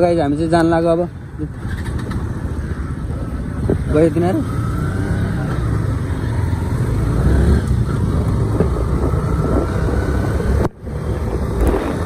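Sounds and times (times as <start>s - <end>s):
motorcycle engine rumble: 0.0s - 12.0s
wind on microphone: 8.1s - 12.0s.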